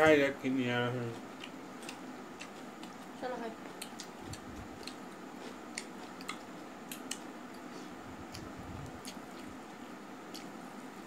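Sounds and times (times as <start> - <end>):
person chewing: 1.3 - 3.1, 3.7 - 9.6, 10.2 - 10.6.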